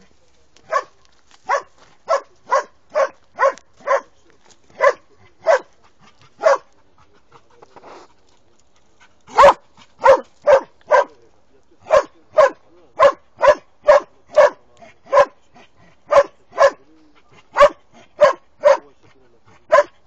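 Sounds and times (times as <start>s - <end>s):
dog barking: 0.7s - 5.8s, 6.4s - 6.8s, 9.3s - 11.2s, 11.8s - 15.4s, 16.1s - 16.9s, 17.5s - 19.0s, 19.7s - 20.0s.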